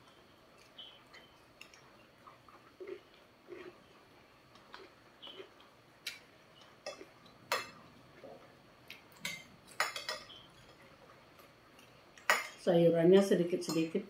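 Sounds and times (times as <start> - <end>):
cutlery clinking on a plate: 9.2 - 10.8.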